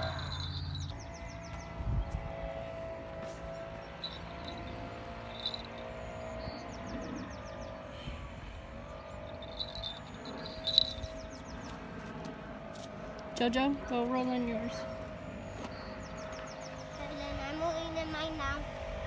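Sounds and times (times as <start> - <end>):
high chirp trills: 0.0 - 1.8, 3.7 - 7.5, 9.0 - 11.7
steady low drone: 0.0 - 18.0.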